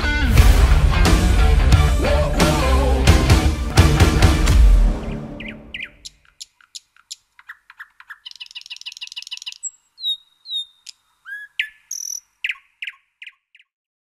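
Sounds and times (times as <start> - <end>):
birds chirping and calling: 4.9 - 13.7.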